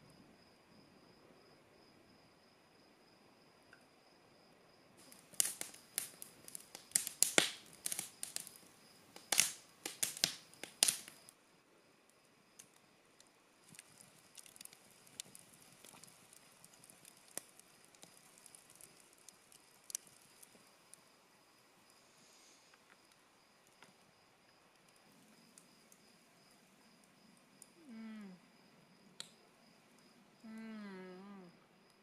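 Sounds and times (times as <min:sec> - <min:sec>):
campfire crackling and popping: 0:05.0 - 0:11.4, 0:12.0 - 0:22.0, 0:22.6 - 0:27.8, 0:29.0 - 0:30.2.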